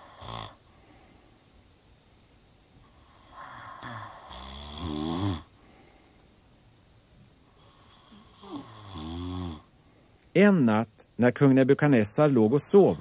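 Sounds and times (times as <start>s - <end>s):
man snoring: 0.0s - 0.6s, 3.0s - 5.5s, 7.6s - 9.7s, 12.8s - 13.0s.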